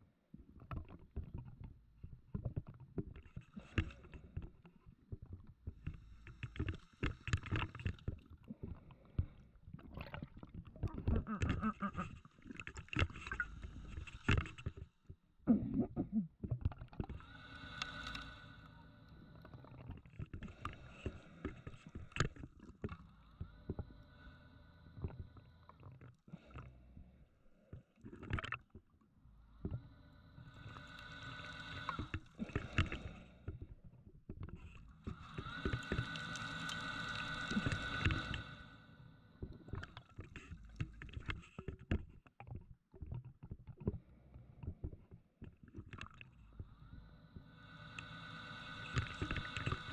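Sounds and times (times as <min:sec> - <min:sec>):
regulator inhalation hissing: 0:17.2 - 0:19.6, 0:30.4 - 0:33.2, 0:35.0 - 0:39.2, 0:47.4 - 0:49.9.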